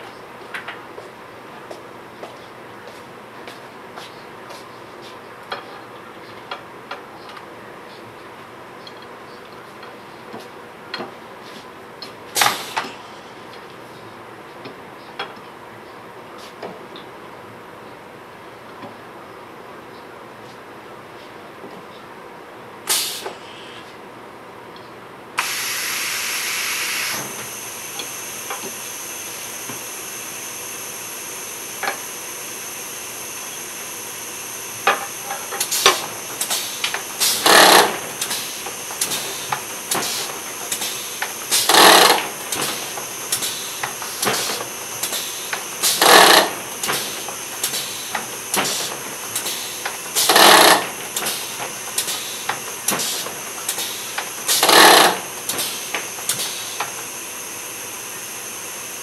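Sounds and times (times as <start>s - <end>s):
loud burst of air hiss: 22.9s - 23.7s, 25.4s - 57.2s
steady air hiss: 25.4s - 41.7s
robot joints clicking and whirring: 36.9s - 38.0s, 41.6s - 42.3s, 45.9s - 46.6s, 50.2s - 51.2s, 53.7s - 55.3s.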